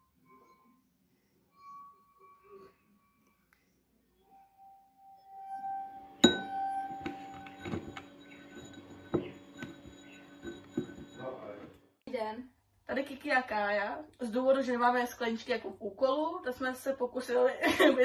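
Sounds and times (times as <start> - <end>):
glass tone ringing: 0.0 - 3.5, 4.1 - 11.7
glass clinks: 5.5 - 11.4.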